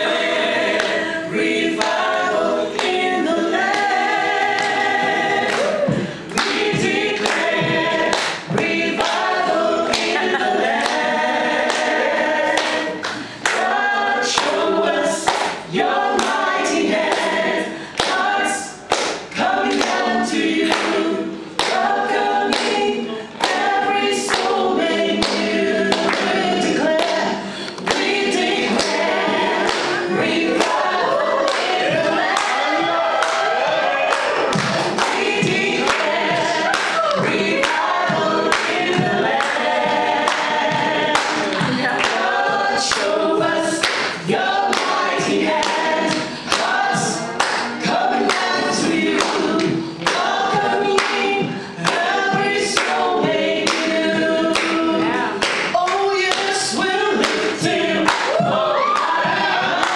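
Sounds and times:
women singing unaccompanied: 0.0s - 33.9s, 34.9s - 59.9s.

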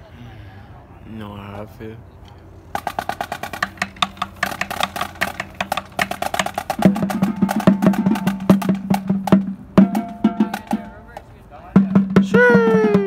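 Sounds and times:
marching drums playing fast: 2.8s - 13.0s
deeper pitched drum: 11.8s - 13.0s.

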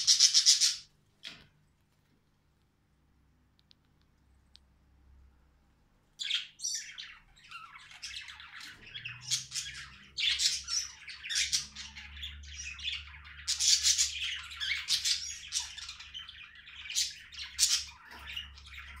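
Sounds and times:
budgerigar chattering: 0.0s - 0.8s.

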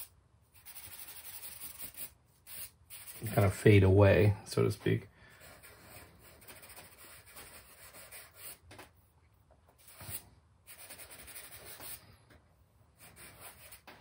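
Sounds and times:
charcoal scraping on paper: 0.0s - 3.4s, 9.8s - 12.0s.

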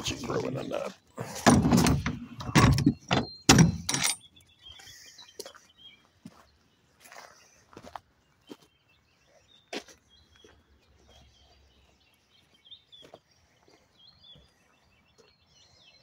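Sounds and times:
small birds chirping: 0.0s - 16.0s
footsteps on gravel: 4.7s - 15.4s.

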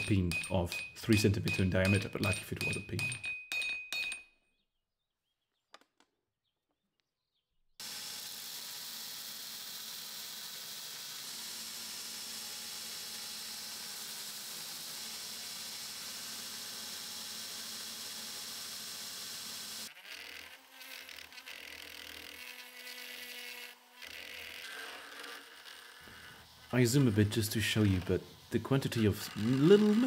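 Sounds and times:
hammer on anvil: 0.0s - 4.2s
belt grinder on steel: 7.8s - 30.0s.

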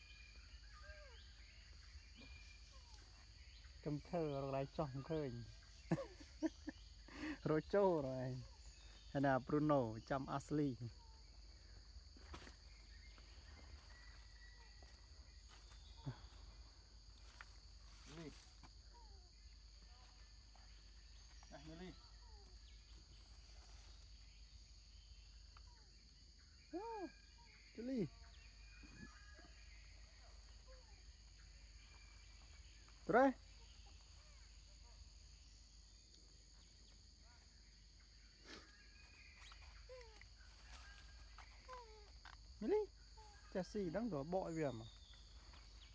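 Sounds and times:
high-pitched insect drone: 0.0s - 36.7s.

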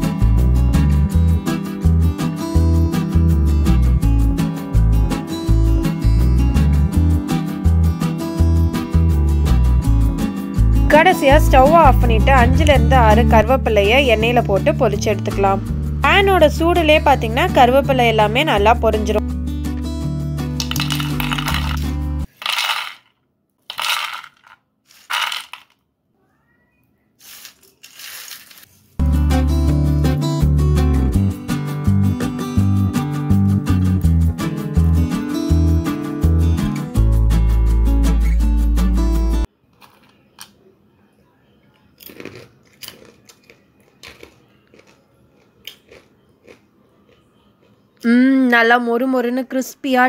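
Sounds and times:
strummed guitar music: 0.0s - 14.3s, 29.0s - 39.5s
peanuts rattling onto a plate: 20.6s - 25.8s, 27.2s - 28.7s
chewing crunchy peanuts: 39.7s - 40.6s, 41.8s - 47.8s.

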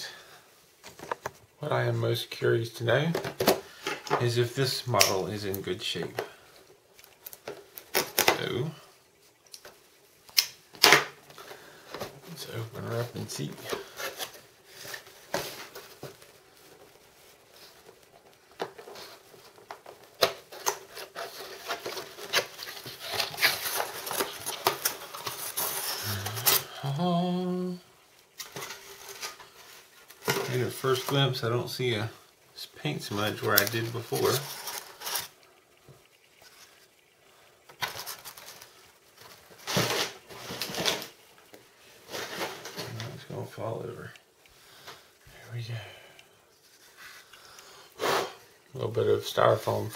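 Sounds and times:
cardboard scraping and rustling: 18.6s - 26.7s, 33.4s - 35.4s, 37.8s - 41.2s, 42.0s - 43.2s.

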